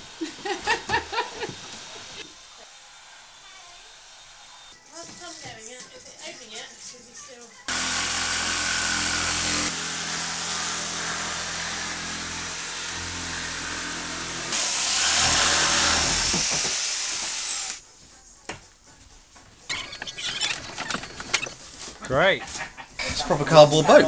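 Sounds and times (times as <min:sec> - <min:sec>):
electric jigsaw cutting cardboard: 0:07.7 - 0:17.8.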